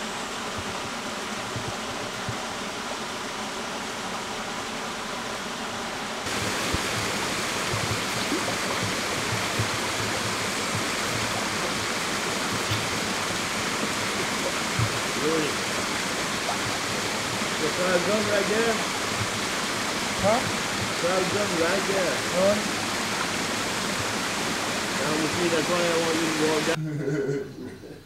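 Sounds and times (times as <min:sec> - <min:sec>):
river water rushing: 0:06.1 - 0:26.8.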